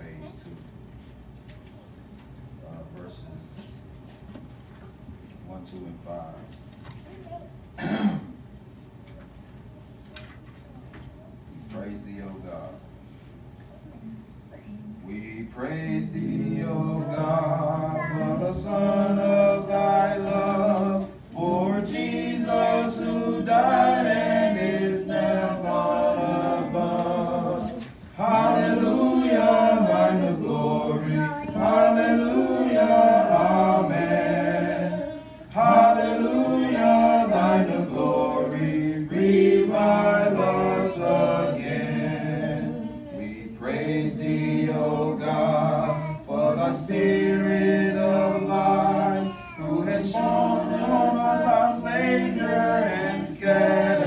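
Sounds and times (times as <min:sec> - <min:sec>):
congregation singing a hymn: 0:15.1 - 0:54.0.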